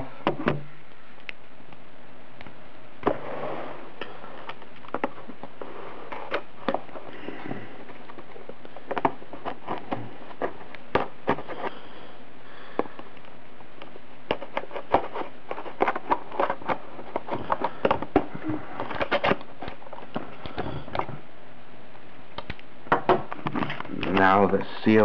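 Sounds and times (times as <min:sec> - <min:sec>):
steady hiss: 0:00.0 - 0:25.0
tape peeling off cardboard: 0:03.0 - 0:11.8, 0:13.2 - 0:21.1.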